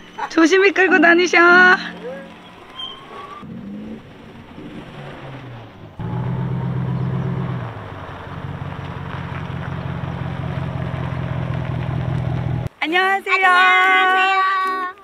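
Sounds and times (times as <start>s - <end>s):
truck engine running at low revs: 1.8s - 12.7s.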